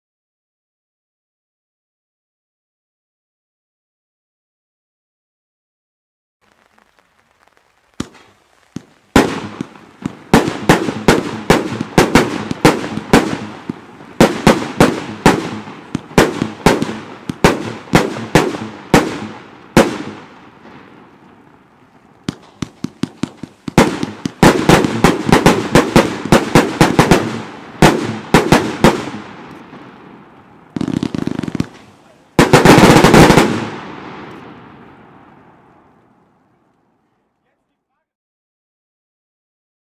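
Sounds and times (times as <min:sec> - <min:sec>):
firework battery bangs: 0:07.9 - 0:21.5, 0:22.2 - 0:35.5.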